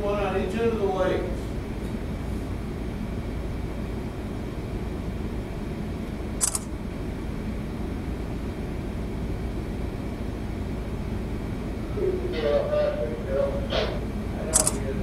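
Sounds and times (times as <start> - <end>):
ship engine low rumble: 0.0 - 15.0
sharp click: 6.4 - 6.7, 14.5 - 14.8.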